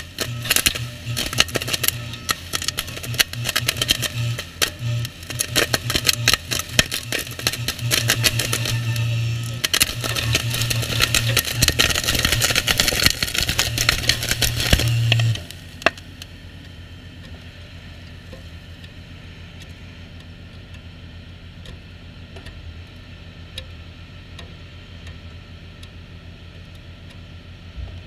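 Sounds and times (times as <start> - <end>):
welding machine humming: 0.0 - 28.0
faint irregular ticks: 21.6 - 27.3.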